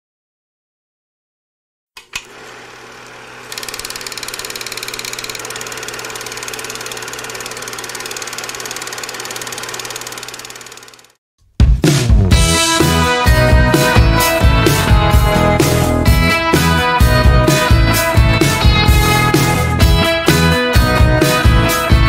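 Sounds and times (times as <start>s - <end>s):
projector click: 2.0s - 2.5s, 3.4s - 11.1s
film projector clattering: 2.0s - 11.2s.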